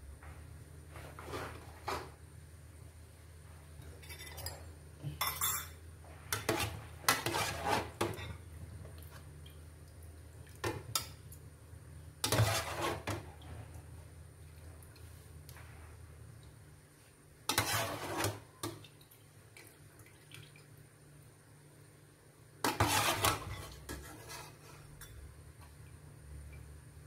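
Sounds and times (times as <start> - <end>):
low steady hum: 0.0 - 27.0
dishes and utensils clattering: 3.9 - 8.5.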